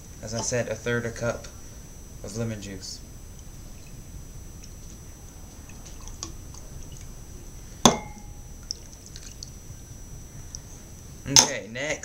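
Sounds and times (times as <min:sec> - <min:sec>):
glass clink: 0:07.8 - 0:08.4
liquid pouring into a bowl: 0:07.8 - 0:09.6.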